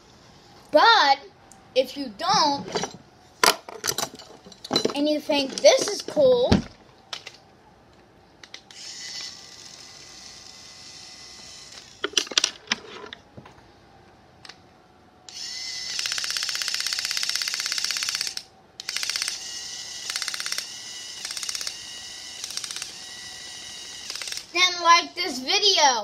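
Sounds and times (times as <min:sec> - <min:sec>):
cordless drill running: 0:08.7 - 0:12.0, 0:15.3 - 0:24.5.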